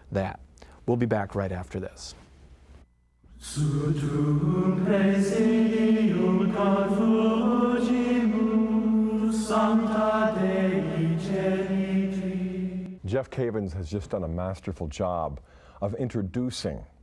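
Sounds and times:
voices singing a slow chant: 3.3s - 13.0s.

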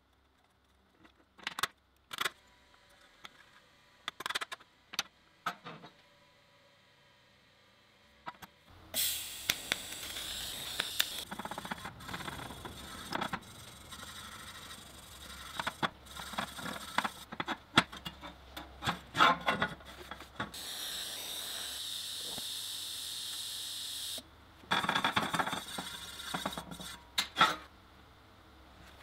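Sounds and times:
welding arc hiss: 8.9s - 11.3s, 20.5s - 24.2s
wire brush scraping metal: 10.2s - 17.3s.

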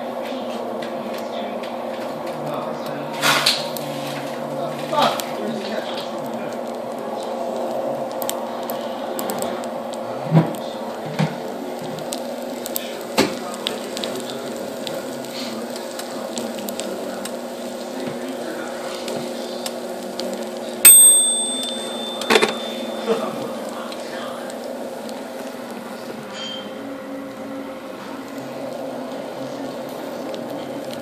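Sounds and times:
eggs sizzling on a pan: 0.6s - 20.8s, 21.6s - 31.0s
loud bright ding: 20.9s - 23.2s.

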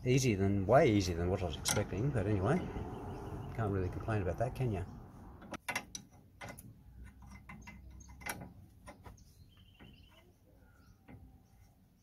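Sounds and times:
metallic clicks of spanner and bolt: 1.6s - 2.0s, 5.4s - 9.0s.

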